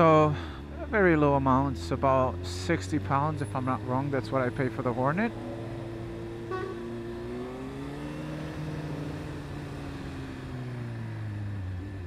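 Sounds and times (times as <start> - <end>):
motorcycle engine at low revs: 0.0 - 12.0.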